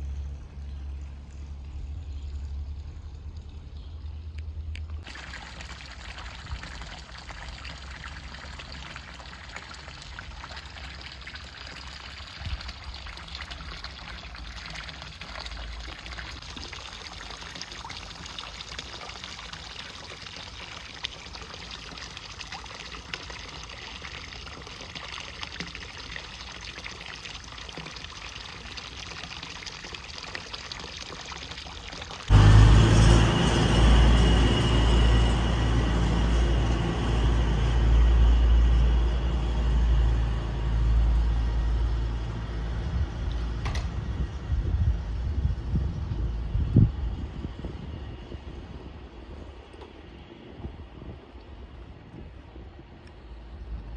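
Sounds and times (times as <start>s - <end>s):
water pouring into trough: 5.0s - 33.3s
low rumble: 32.3s - 53.9s.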